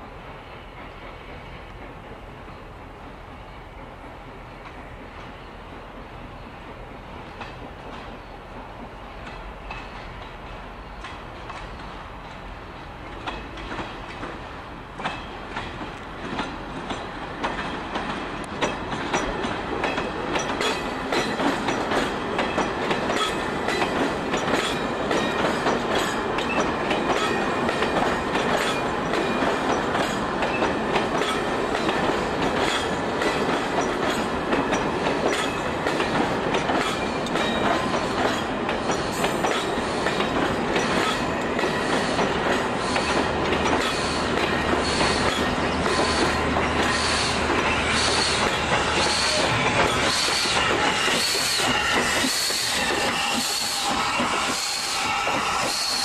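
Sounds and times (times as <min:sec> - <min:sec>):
train wheels clicking over rail joints: 0:00.0 - 0:56.0
wheel squeal: 0:44.8 - 0:56.0.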